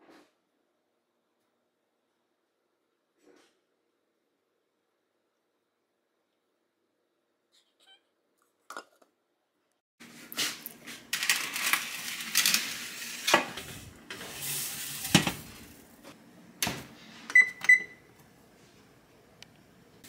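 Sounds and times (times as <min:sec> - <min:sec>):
metal tray scraping on rack: 0:10.4 - 0:16.2
tray clunk: 0:15.0 - 0:15.8
oven short beeps: 0:17.3 - 0:18.1.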